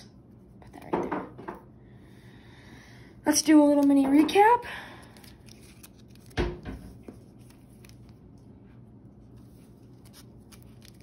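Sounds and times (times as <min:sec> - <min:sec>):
plastic card sleeves clicking and rustling: 0:05.1 - 0:08.2, 0:09.9 - 0:11.0.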